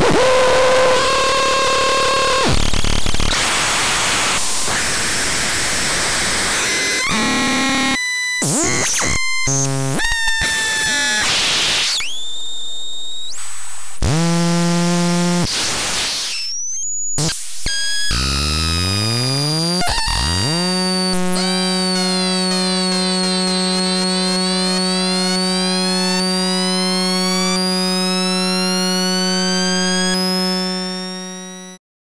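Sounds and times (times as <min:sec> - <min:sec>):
buzzing synthesizer tone sweeping: 0:14.0 - 0:31.8
harsh synthesizer tones with glides: 0:17.2 - 0:31.5.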